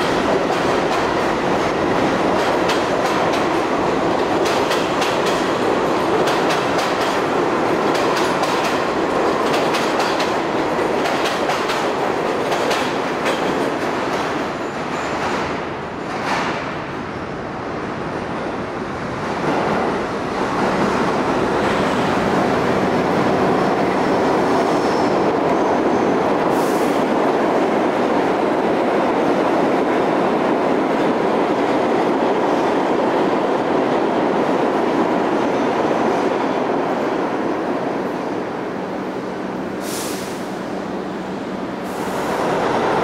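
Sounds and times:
subway train wheels on rails: 0.0s - 43.0s
short high hiss: 39.8s - 40.6s.

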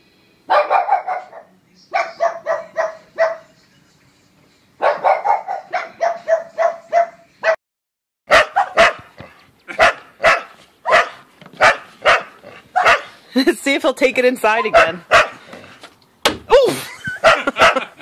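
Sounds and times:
dog barking: 0.5s - 3.5s, 4.8s - 7.6s, 8.3s - 13.2s, 14.6s - 15.4s, 17.2s - 17.9s.

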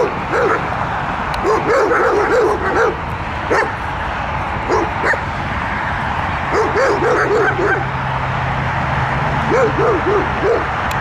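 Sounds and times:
steady noisy background: 0.0s - 11.0s.

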